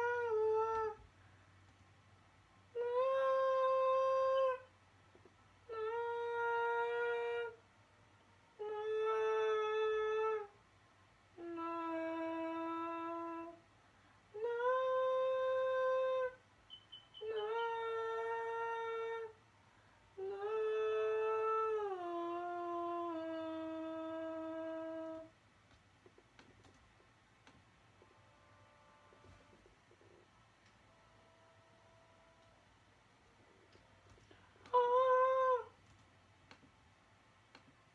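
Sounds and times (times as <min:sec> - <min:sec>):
person humming slow melody: 0:00.0 - 0:01.1, 0:02.7 - 0:04.7, 0:05.6 - 0:07.6, 0:08.5 - 0:10.6, 0:11.4 - 0:13.6, 0:14.3 - 0:16.4, 0:17.2 - 0:19.4, 0:20.2 - 0:25.3, 0:33.6 - 0:35.8.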